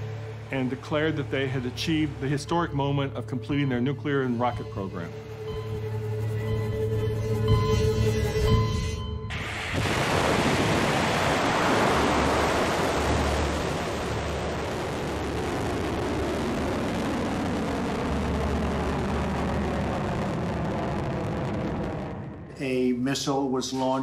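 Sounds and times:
rocket motor roaring: 9.3s - 23.0s.

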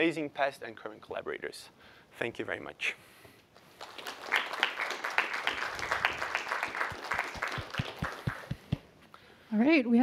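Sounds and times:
audience applauding: 3.8s - 8.8s.

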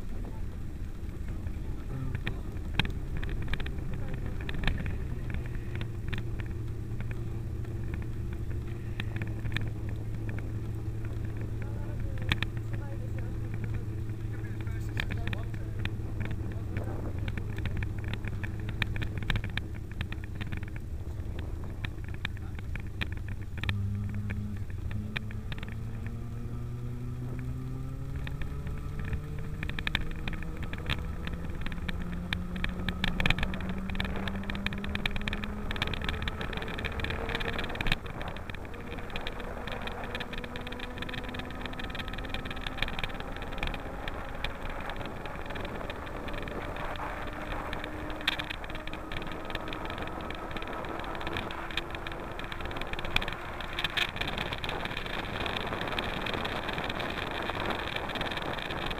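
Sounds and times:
tyres rushing on wet tarmac: 0.0s - 26.8s
small clicks and rattles: 0.0s - 58.9s.

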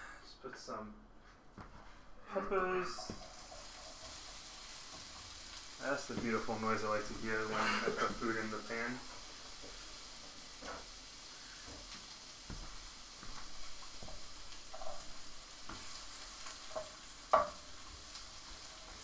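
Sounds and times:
peppers sizzling in oil: 2.3s - 19.0s
wooden spoon knocking a pan: 6.1s - 6.6s, 16.6s - 17.9s.

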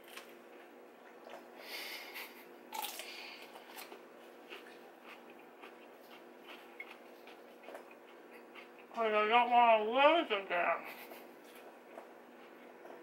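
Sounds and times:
chewing: 0.0s - 1.6s, 2.2s - 9.0s, 11.1s - 13.0s
crunchy bites: 2.7s - 7.0s.

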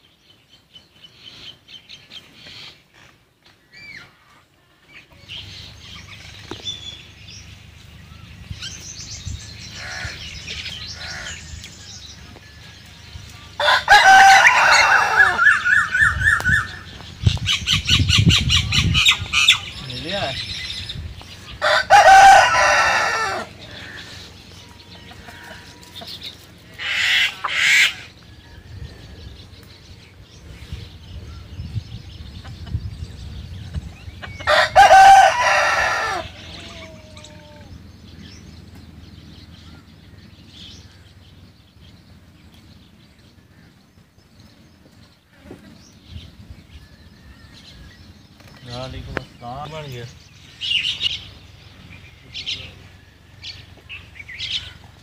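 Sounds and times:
rooster crowing: 13.5s - 16.6s, 21.6s - 26.1s, 34.4s - 37.6s.

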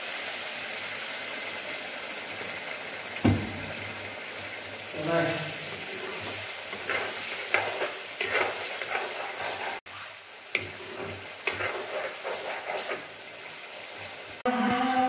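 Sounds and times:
curry sizzling in a pan: 0.0s - 15.0s
metal spatula scraping pan: 5.7s - 13.3s.

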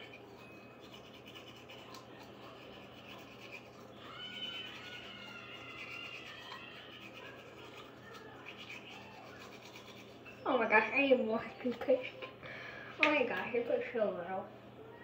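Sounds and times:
toothbrush scrubbing teeth: 0.0s - 10.8s.

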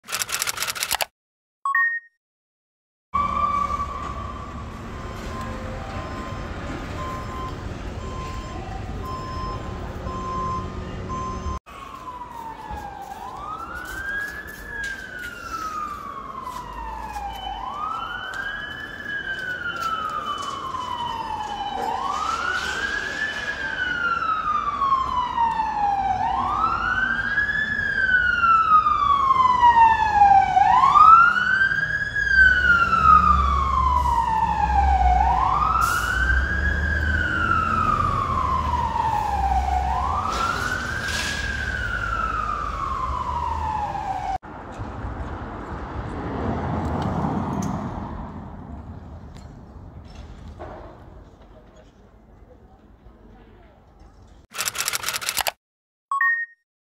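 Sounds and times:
emergency siren wailing: 3.2s - 44.4s
second siren: 3.2s - 44.4s.

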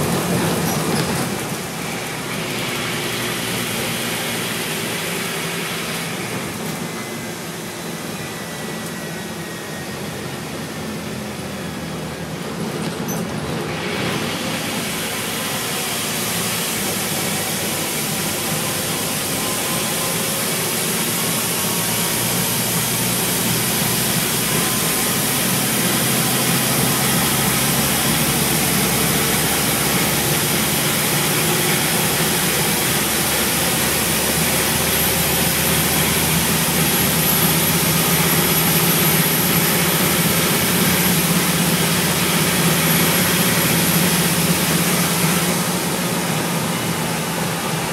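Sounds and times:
bus diesel engine: 0.0s - 47.9s.

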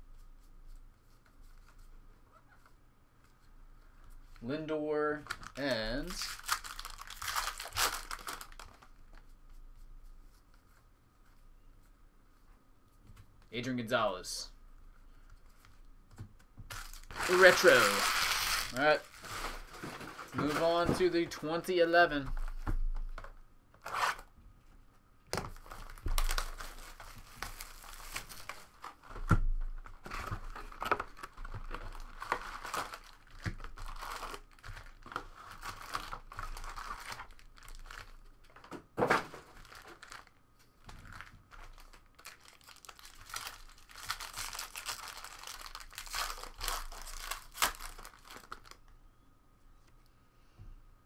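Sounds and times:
plastic shrink wrap tearing: 5.2s - 8.9s, 16.7s - 20.8s, 30.1s - 38.2s, 39.4s - 40.3s, 41.0s - 48.8s
foil packs crinkling and tearing: 5.2s - 9.1s, 16.7s - 21.2s, 25.6s - 29.2s, 29.8s - 38.6s, 39.2s - 48.8s.

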